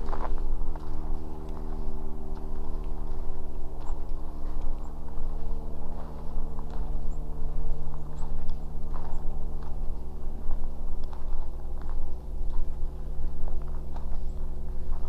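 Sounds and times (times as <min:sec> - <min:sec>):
footsteps on ice: 0:00.0 - 0:15.0
steady low hum and rumble: 0:00.0 - 0:15.0.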